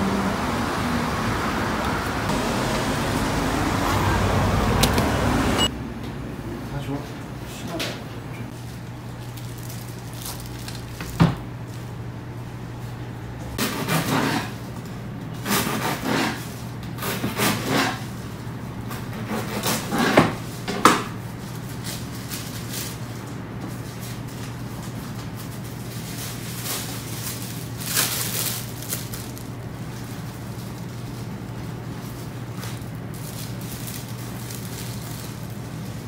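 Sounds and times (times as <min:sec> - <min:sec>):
bread knife sawing through loaf: 0:13.6 - 0:14.6, 0:15.4 - 0:16.4, 0:17.0 - 0:18.0.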